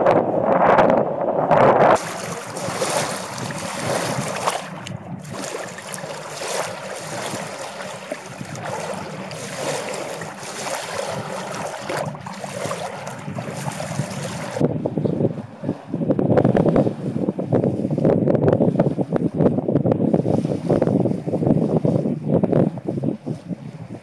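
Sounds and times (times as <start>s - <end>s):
wind noise on microphone: 0.0s - 24.0s
sea water splashing: 2.0s - 14.6s.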